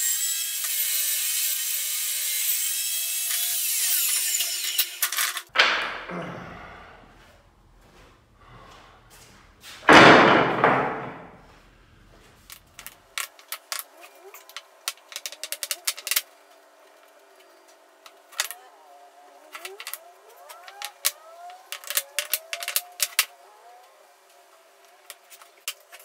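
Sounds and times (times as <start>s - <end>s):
wooden blocks clattering down: 5.0s - 6.2s, 9.8s - 11.4s, 12.5s - 16.2s, 18.1s - 18.6s, 19.5s - 23.3s
wooden blocks clicking together: 12.8s - 16.3s, 19.5s - 23.3s.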